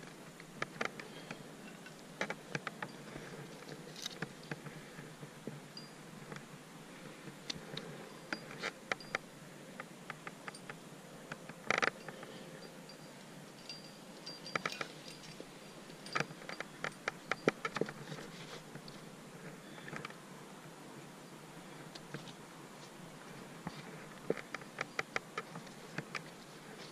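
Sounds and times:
climbing gear clinking: 0:11.5 - 0:18.8.

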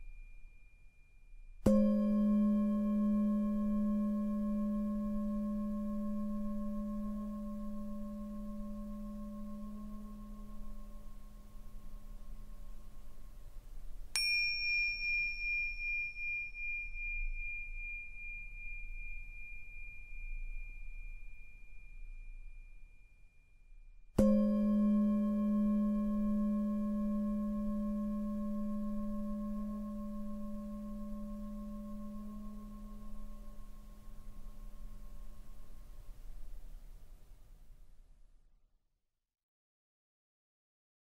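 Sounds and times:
small high-pitched bell: 0:00.0 - 0:13.3, 0:14.1 - 0:36.0
deep singing bowl ringing: 0:00.0 - 0:13.4, 0:14.1 - 0:23.4, 0:24.2 - 0:36.1.

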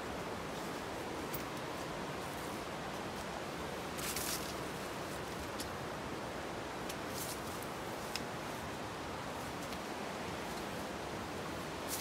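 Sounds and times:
steady rushing hiss: 0:00.0 - 0:12.0
footsteps through rustling leaves: 0:00.4 - 0:05.5, 0:11.8 - 0:12.0.

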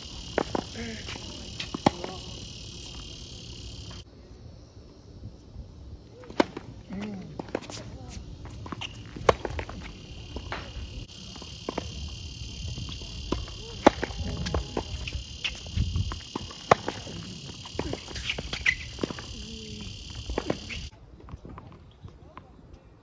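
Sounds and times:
insect chorus: 0:00.0 - 0:20.9
tennis racket hitting ball: 0:00.1 - 0:02.4.

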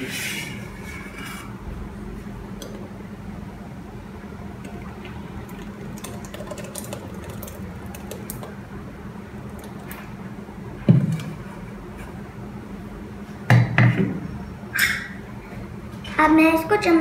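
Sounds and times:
thick juice pouring through strainer: 0:04.6 - 0:08.6, 0:09.4 - 0:10.0.

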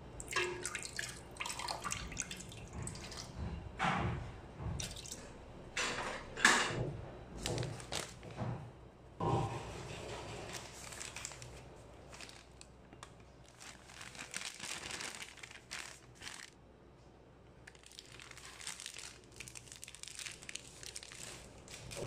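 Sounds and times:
flour bag crinkling and rustling: 0:07.4 - 0:08.4, 0:10.1 - 0:16.6, 0:17.6 - 0:22.0.

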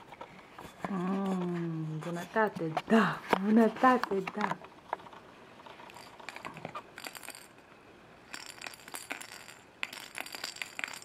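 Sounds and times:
plastic baby rattle shaken: 0:05.8 - 0:07.6, 0:08.3 - 0:11.0.

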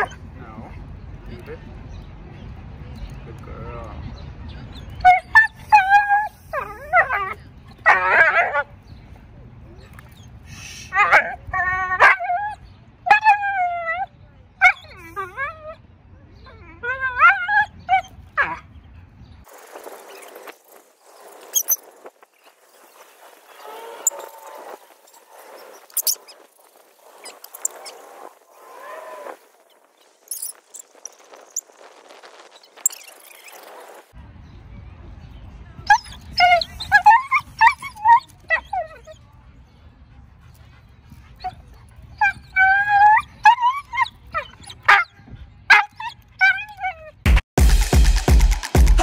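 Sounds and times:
dog whining and yelping: 0:04.7 - 0:08.6, 0:10.9 - 0:15.8, 0:16.7 - 0:18.6, 0:35.9 - 0:39.2, 0:41.3 - 0:47.2
dog whining: 0:35.9 - 0:39.2, 0:42.2 - 0:45.1.

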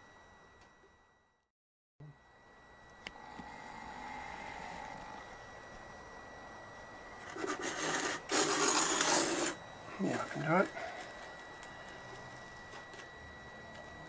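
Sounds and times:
faint high whine: 0:00.0 - 0:14.0
foam block scraping on table: 0:07.2 - 0:09.6.

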